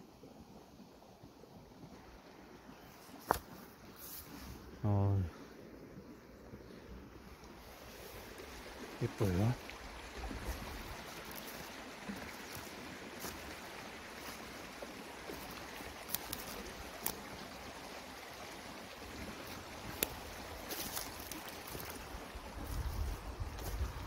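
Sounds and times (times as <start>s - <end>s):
stream running water: 0.0s - 24.0s
footsteps on grass and gravel: 10.2s - 17.2s, 19.5s - 24.0s.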